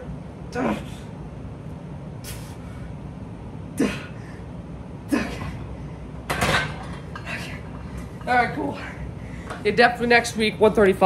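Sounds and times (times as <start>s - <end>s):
person grunting: 0.5s - 1.1s, 3.8s - 4.2s, 5.1s - 5.6s.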